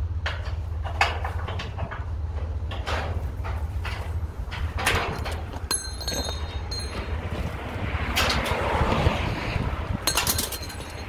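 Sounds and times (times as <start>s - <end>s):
hook clinking: 5.7s - 7.1s.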